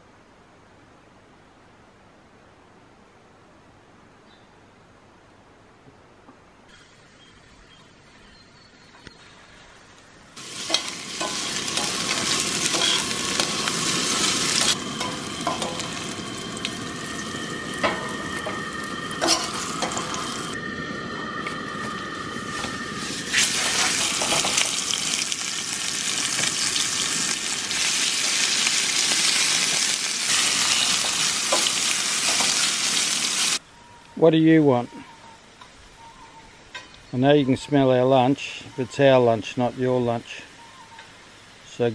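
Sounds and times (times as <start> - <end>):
steaks sizzling in hot oil: 10.4 - 20.6, 21.5 - 33.6
metal tongs clicking against pan: 10.7 - 13.6.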